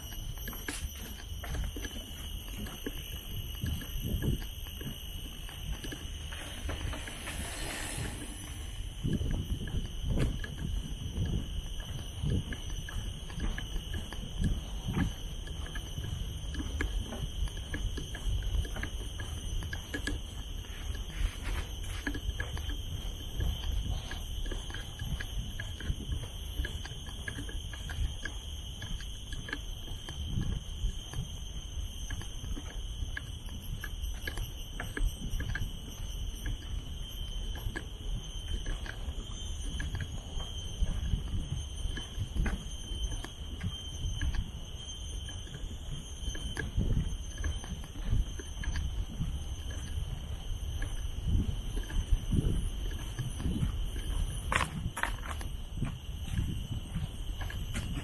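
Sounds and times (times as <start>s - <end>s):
light ticks: 0.0s - 58.0s
steady high-pitched drone: 0.0s - 58.0s
wind rumbling on microphone: 0.0s - 58.0s
footsteps: 0.4s - 13.6s
steady high hiss: 5.0s - 11.6s.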